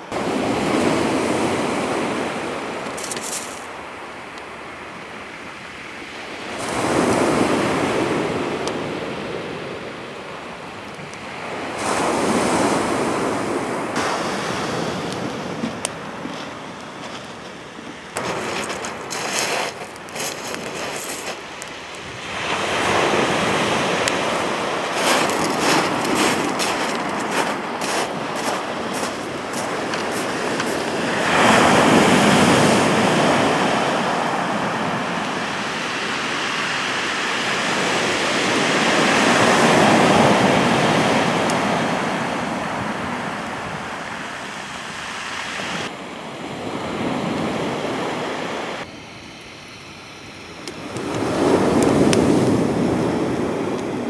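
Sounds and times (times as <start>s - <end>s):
waves breaking on shingle: 2.9s - 3.7s, 15.2s - 32.8s.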